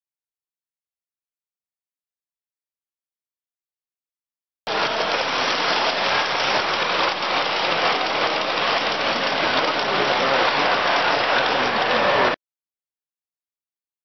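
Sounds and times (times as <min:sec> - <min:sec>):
model train wheels rumbling: 0:04.7 - 0:12.4.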